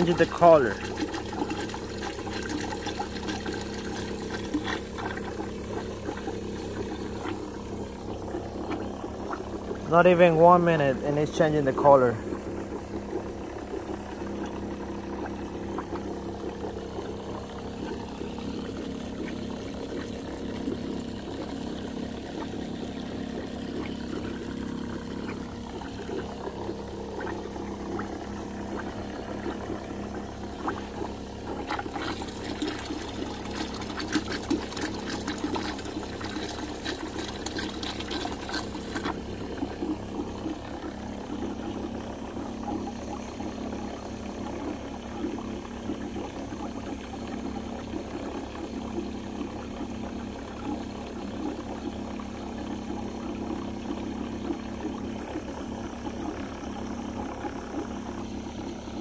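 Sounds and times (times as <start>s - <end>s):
pressure washer humming: 0.0s - 46.0s
liquid gushing into plastic bucket: 0.0s - 59.0s.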